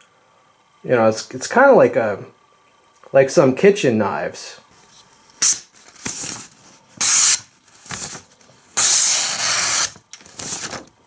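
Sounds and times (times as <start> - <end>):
knife slicing paper: 5.4 - 8.2, 8.8 - 10.8.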